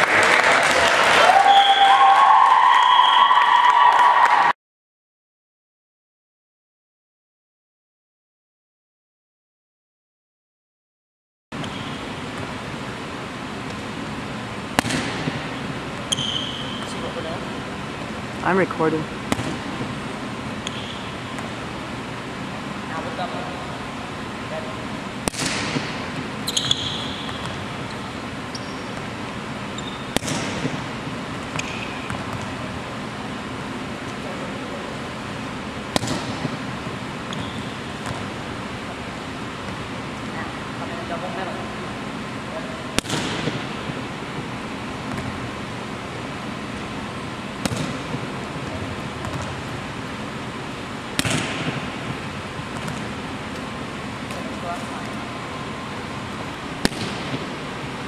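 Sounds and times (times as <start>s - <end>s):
sneaker squeaks on hardwood: 11.6s - 12.5s, 16.0s - 17.1s, 20.6s - 21.4s, 26.4s - 29.1s, 29.7s - 30.7s, 31.5s - 32.4s, 37.2s - 38.3s
volleyball being hit slaps: 14.7s - 17.0s, 19.2s - 20.0s, 25.2s - 27.8s, 30.1s - 32.6s, 35.9s - 36.7s, 38.0s - 38.4s, 42.9s - 45.4s, 47.6s - 49.8s, 51.1s - 55.2s, 56.8s - 57.6s.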